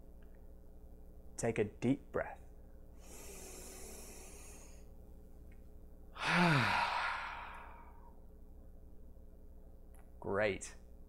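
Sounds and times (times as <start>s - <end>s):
man breathing in deeply: 3.0s - 4.9s, 6.2s - 8.1s
man sighing: 6.2s - 8.1s.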